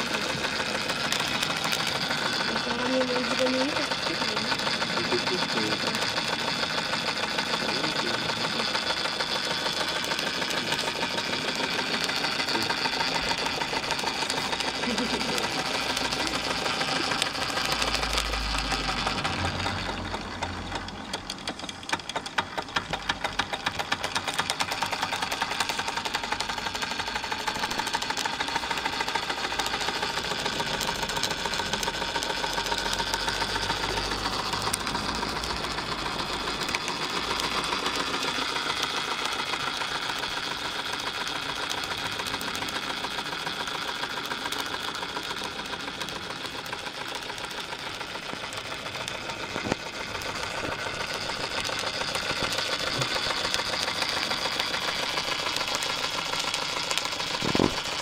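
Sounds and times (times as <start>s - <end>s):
toy steam engine clattering: 0.0s - 58.0s.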